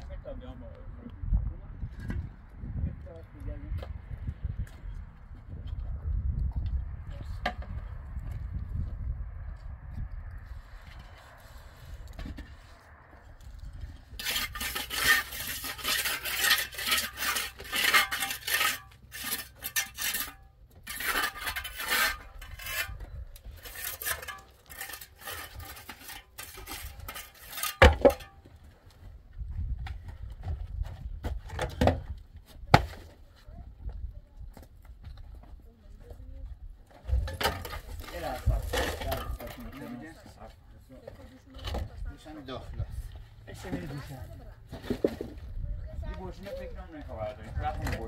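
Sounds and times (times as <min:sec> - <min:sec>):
rapid scraping strokes: 0:10.5 - 0:28.3.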